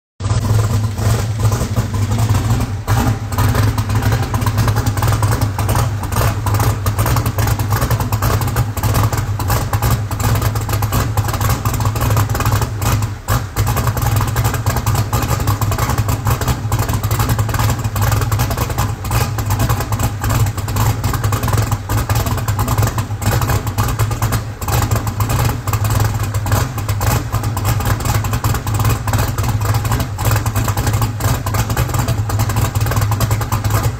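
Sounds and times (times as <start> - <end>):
car engine idling: 0.2 - 33.9.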